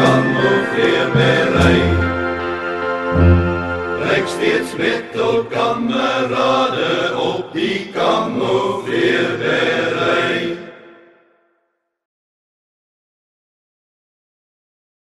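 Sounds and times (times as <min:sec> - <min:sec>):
voices chanting a song: 0:00.0 - 0:02.6, 0:03.2 - 0:11.2.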